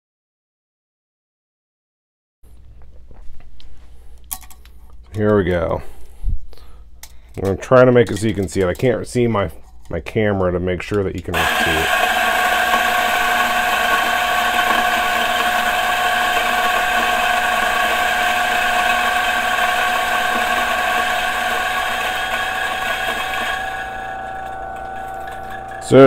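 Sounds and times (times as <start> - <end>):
coffee grinder grinding beans: 11.4 - 26.0.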